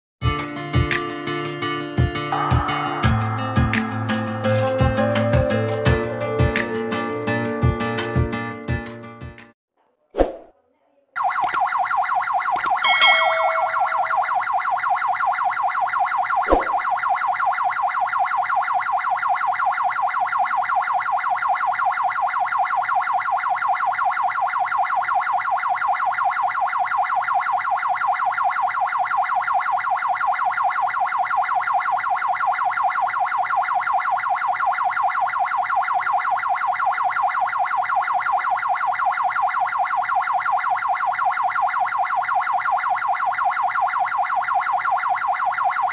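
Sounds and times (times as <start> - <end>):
ambulance siren warbling: 11.2 - 45.9.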